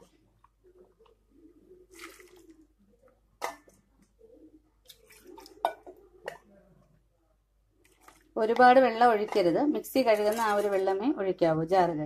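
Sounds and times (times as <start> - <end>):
wet squelching and dripping: 1.9 - 2.7, 4.8 - 5.6.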